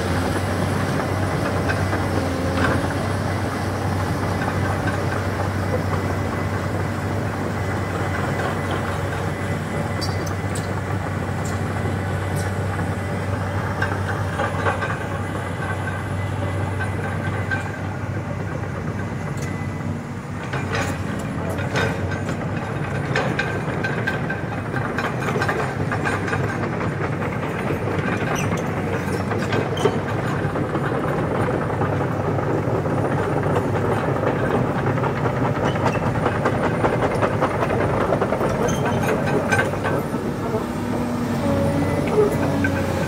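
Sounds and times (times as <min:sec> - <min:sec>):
excavator diesel engine running: 0:00.0 - 0:43.0
metallic clanks and knocks: 0:35.6 - 0:43.0.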